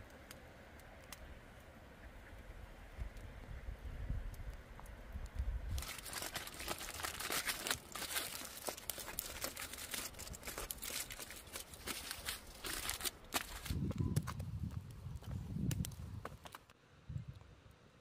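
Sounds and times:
aluminium foil crinkling: 0:05.7 - 0:13.9.

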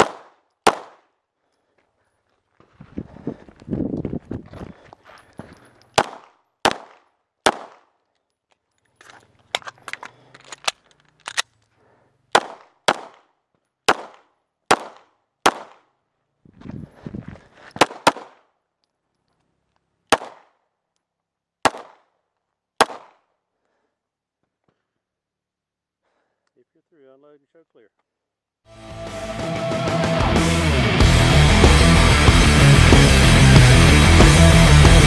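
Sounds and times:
pistol shots: 0:00.0 - 0:01.0, 0:06.0 - 0:07.9, 0:12.3 - 0:13.3, 0:13.9 - 0:15.8, 0:17.8 - 0:18.4, 0:20.1 - 0:20.5, 0:21.6 - 0:22.0, 0:22.8 - 0:23.2
rustling of movement: 0:01.4 - 0:06.0, 0:16.4 - 0:17.8.

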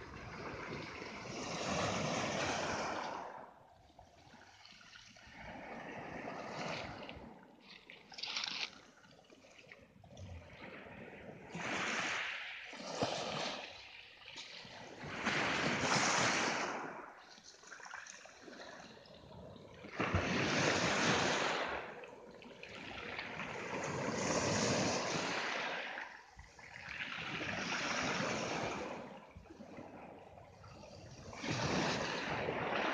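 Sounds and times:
waves breaking on pebble beach: 0:00.1 - 0:03.4, 0:11.5 - 0:13.9, 0:14.8 - 0:17.0, 0:20.0 - 0:21.9, 0:23.3 - 0:26.0, 0:27.1 - 0:29.1.

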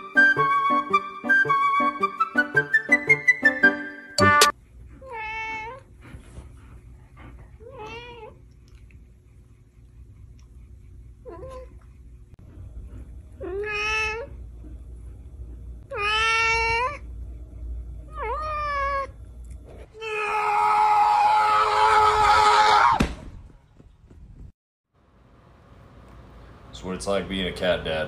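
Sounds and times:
cat yowling: 0:13.4 - 0:14.3, 0:15.9 - 0:17.0, 0:18.1 - 0:19.1, 0:20.0 - 0:23.0
cat meowing: 0:15.9 - 0:17.0.

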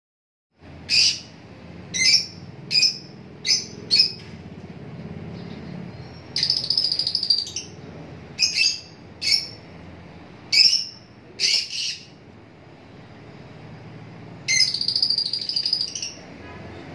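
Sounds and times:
lovebirds chirping shrilly: 0:00.8 - 0:04.2, 0:05.4 - 0:07.8, 0:08.4 - 0:09.7, 0:10.5 - 0:12.2, 0:14.5 - 0:16.3
rapid bird chattering: 0:00.8 - 0:04.2, 0:05.4 - 0:07.8, 0:08.4 - 0:09.7, 0:10.5 - 0:12.2, 0:14.5 - 0:16.3.

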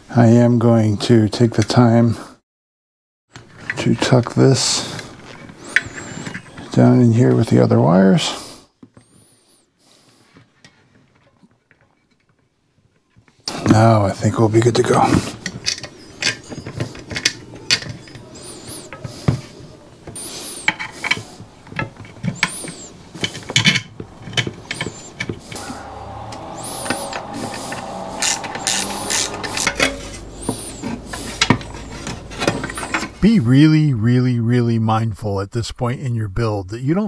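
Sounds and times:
clicks and knocks of parts: 0:15.4 - 0:18.2, 0:18.9 - 0:25.7.

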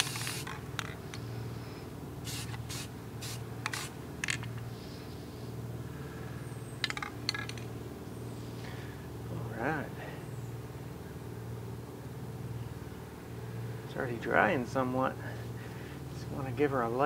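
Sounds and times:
spray paint can spritzes: 0:00.0 - 0:00.6, 0:02.2 - 0:04.0
steady low hum: 0:00.0 - 0:17.0.

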